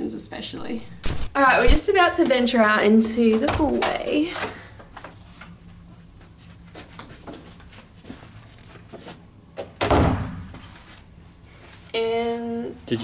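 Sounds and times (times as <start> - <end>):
door thudding shut: 9.8 - 10.4.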